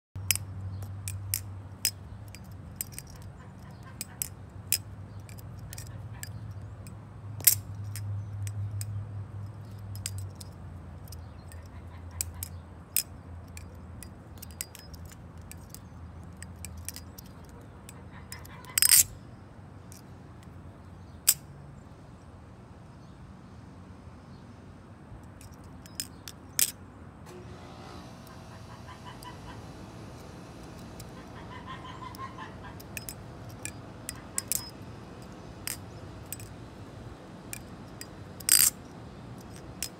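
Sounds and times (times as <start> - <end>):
butterfly knife clacking: 0.2 - 19.1, 32.0 - 36.5, 37.5 - 39.9.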